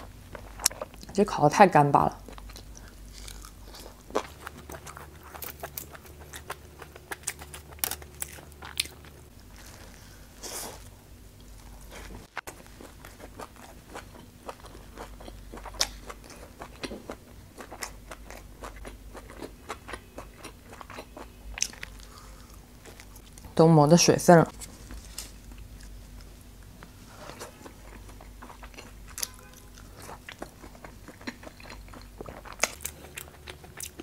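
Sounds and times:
chewing and biting meat: 2.2s - 9.9s, 11.7s - 23.2s, 27.4s - 34.0s.

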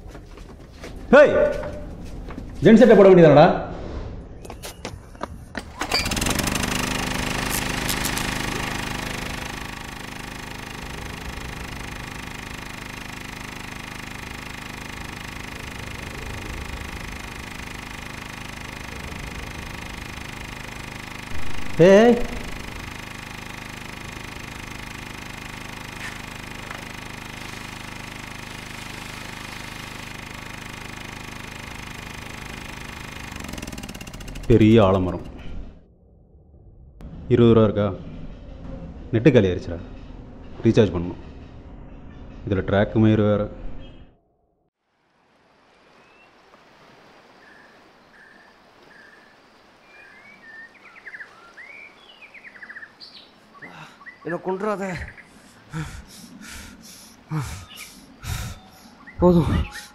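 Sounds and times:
pulsing mechanical drone: 5.8s - 43.2s, 54.2s - 59.9s
birds calling: 47.2s - 59.9s
bird trills and rising chirps: 57.6s - 59.9s.

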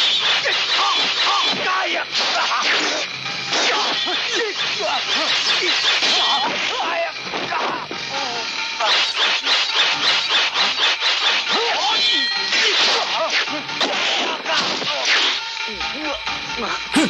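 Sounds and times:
sharp sword whacks: 0.3s - 6.8s, 8.8s - 15.4s
sword swishing: 8.8s - 15.3s
man shouting and grunting: 16.6s - 17.0s.

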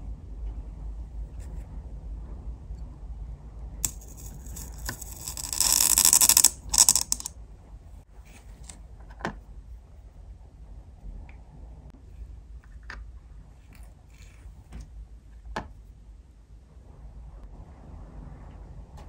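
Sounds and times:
tweezers scraping on dishes: 3.8s - 7.3s.

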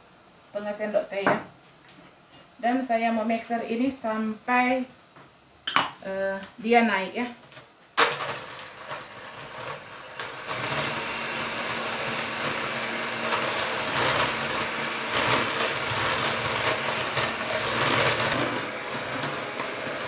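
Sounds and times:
electric hand mixer whisking: 8.0s - 20.0s.

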